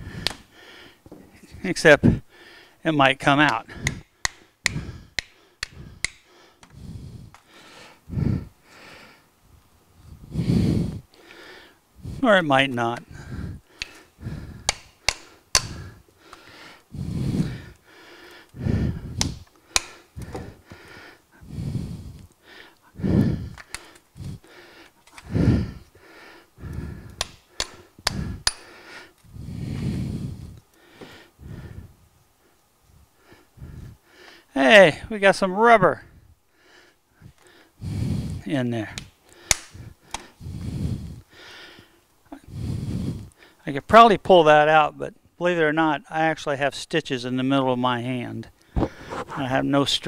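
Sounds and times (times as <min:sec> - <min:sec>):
heavy breathing: 0:00.0 - 0:09.3, 0:10.0 - 0:35.2, 0:35.9 - 0:43.6, 0:48.6 - 0:50.0
sharp metal clicks: 0:03.4 - 0:06.7, 0:13.8 - 0:15.9, 0:19.2 - 0:20.4, 0:27.1 - 0:28.7, 0:39.0 - 0:40.2.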